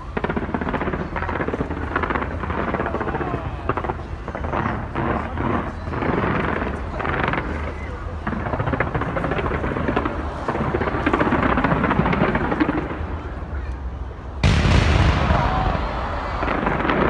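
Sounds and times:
fireworks pops and crackles: 0.0 - 17.0
loud firework boom: 14.4 - 17.0.

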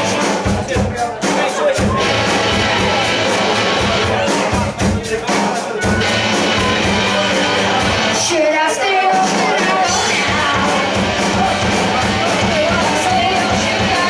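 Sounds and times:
rock band playing: 0.0 - 14.0
person singing into a microphone: 7.3 - 14.0.

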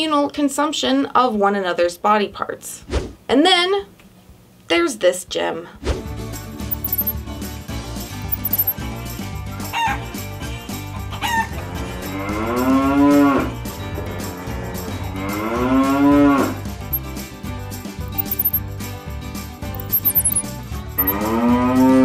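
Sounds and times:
background music with steady beat: 6.7 - 7.2, 8.2 - 8.8, 18.1 - 18.6, 19.7 - 21.2.

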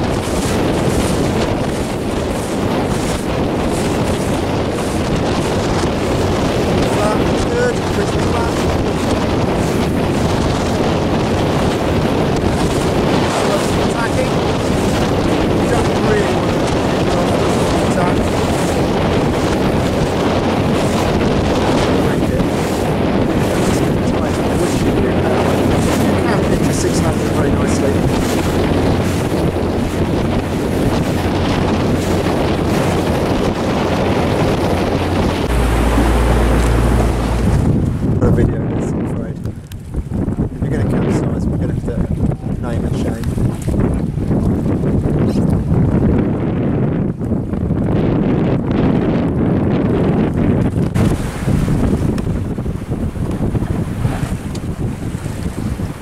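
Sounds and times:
choppy water: 0.0 - 56.0
wind buffeting microphone: 0.0 - 56.0.

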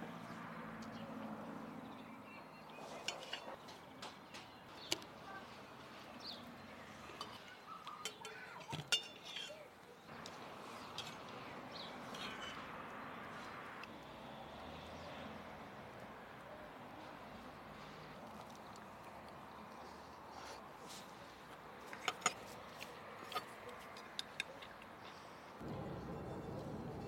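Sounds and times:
cutlery clinking on plates: 3.0 - 4.2, 7.1 - 9.6.

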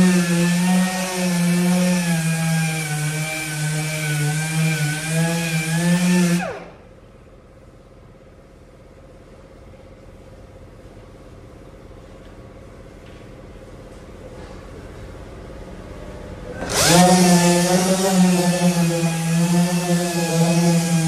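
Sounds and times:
electric sander running: 0.0 - 6.8, 16.6 - 21.0
sander spinning down: 0.0 - 6.8, 16.6 - 21.0.

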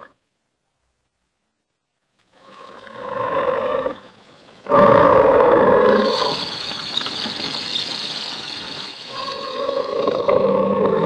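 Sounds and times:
alligator roaring: 2.4 - 6.4, 9.2 - 11.0.

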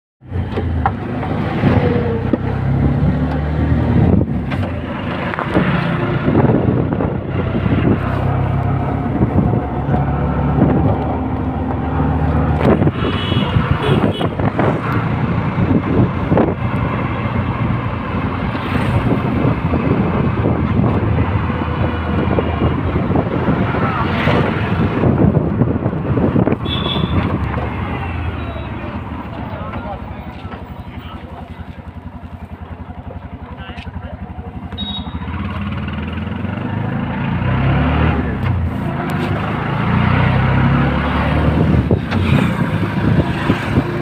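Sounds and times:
road noise rumble: 0.2 - 44.0
wind buffeting microphone: 3.7 - 28.2, 41.4 - 44.0.

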